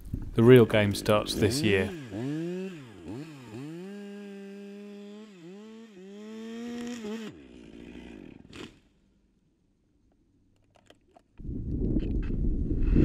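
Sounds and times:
chainsaw cutting tree trunk: 0:00.8 - 0:09.0.

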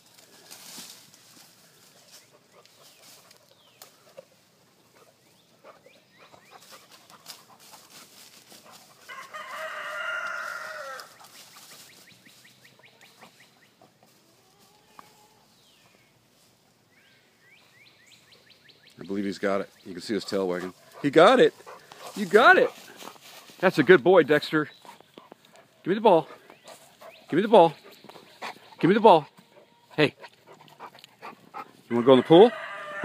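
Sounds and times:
rooster crowing: 0:09.1 - 0:11.2, 0:31.9 - 0:33.0.

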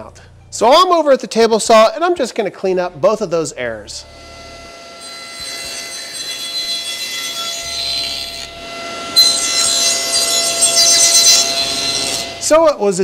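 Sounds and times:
table saw whining: 0:03.4 - 0:12.8
saw blade cutting wood: 0:03.9 - 0:12.6.

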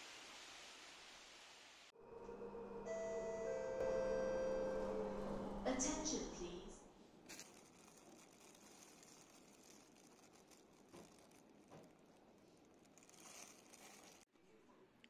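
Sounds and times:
plastic bag crinkling: 0:07.2 - 0:14.3.

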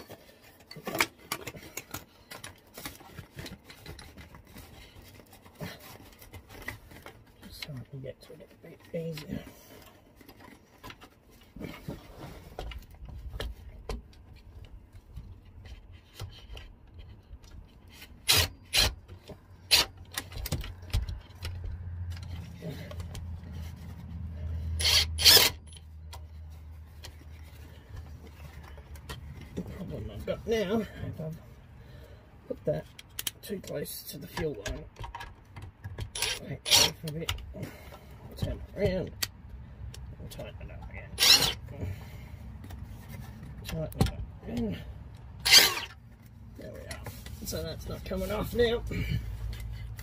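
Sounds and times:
plastic pipe clicking and scraping: 0:00.0 - 0:30.1, 0:32.7 - 0:47.6, 0:49.2 - 0:50.0
power drill driving screw: 0:18.2 - 0:19.0, 0:19.7 - 0:19.9, 0:24.8 - 0:25.8, 0:36.1 - 0:37.0, 0:41.1 - 0:41.6, 0:45.4 - 0:46.0.

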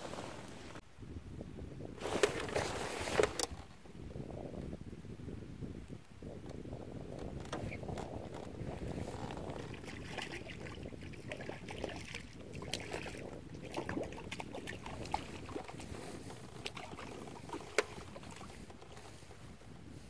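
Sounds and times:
water trickling: 0:09.2 - 0:18.6.

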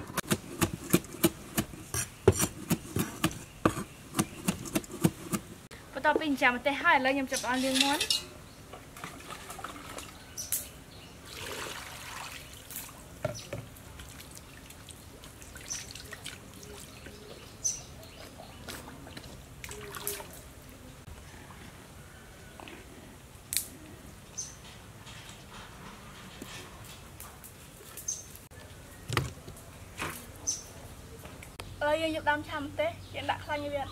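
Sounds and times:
water splashing and trickling: 0:08.7 - 0:17.6, 0:18.7 - 0:21.0
water pouring: 0:11.3 - 0:13.1.

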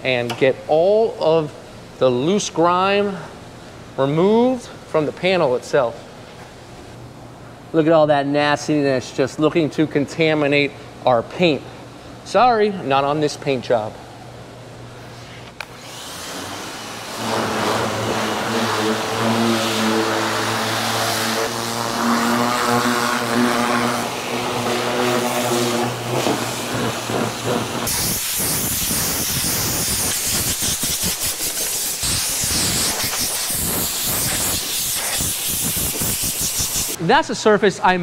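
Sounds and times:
pressure washer pump hum: 0:15.1 - 0:37.0
water spray hissing: 0:27.0 - 0:37.0.

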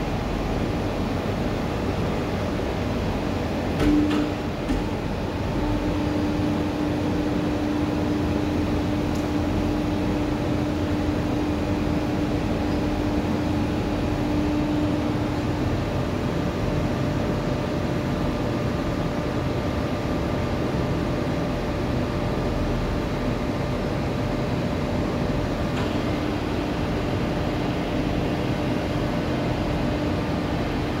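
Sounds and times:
hydraulic press hum: 0:00.0 - 0:17.5, 0:25.3 - 0:31.0.

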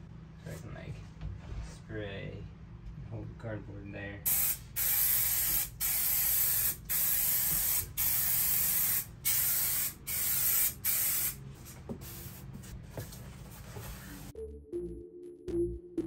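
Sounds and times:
aerosol can spraying: 0:04.3 - 0:11.4, 0:12.0 - 0:12.6
music: 0:14.3 - 0:16.0.

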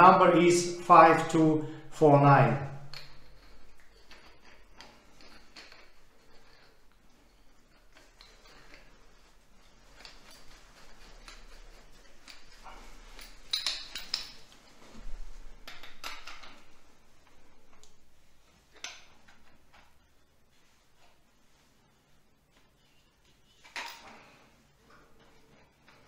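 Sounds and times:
metal fittings clinking and scraping: 0:02.8 - 0:16.8.

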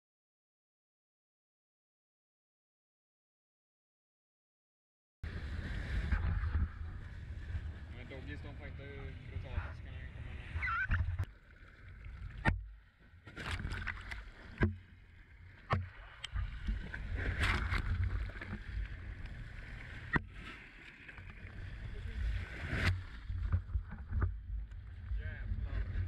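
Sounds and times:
boat engine rumble: 0:05.2 - 0:26.0
water splashing: 0:05.3 - 0:26.0.

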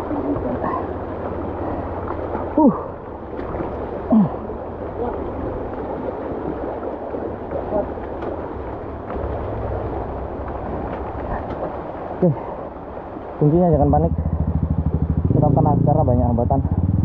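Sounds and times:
water churning and splashing: 0:00.0 - 0:17.0
motorcycle engine at low revs: 0:13.7 - 0:17.0.

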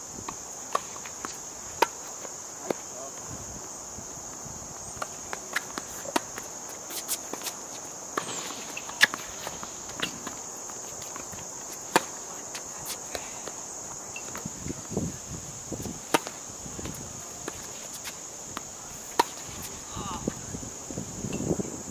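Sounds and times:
high-pitched insect drone: 0:00.4 - 0:21.9
footsteps and shoe scuffs: 0:04.3 - 0:15.0, 0:15.7 - 0:19.8
tennis ball racquet hits: 0:05.0 - 0:07.6, 0:08.2 - 0:13.0, 0:16.0 - 0:18.2, 0:19.0 - 0:19.8.

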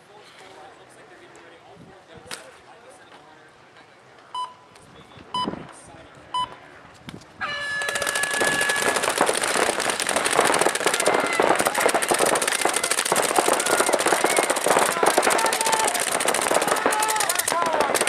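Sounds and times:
players shouting: 0:07.4 - 0:18.0
paintball markers firing pops: 0:07.8 - 0:18.0.

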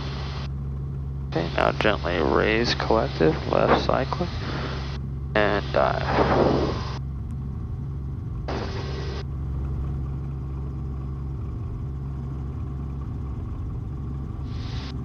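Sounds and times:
helicopter rotors and engine drone: 0:00.0 - 0:15.0
burst of noise: 0:02.8 - 0:07.0.

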